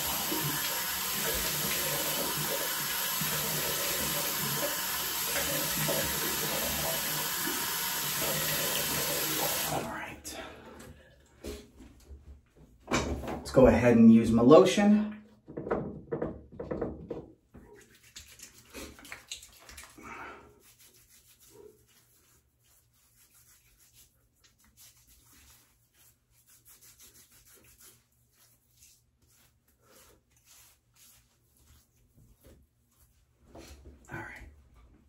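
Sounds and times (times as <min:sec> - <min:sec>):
knocks from handling things: 0:15.4 - 0:17.4
hands rubbing beard and skin: 0:17.7 - 0:20.0, 0:20.6 - 0:33.7.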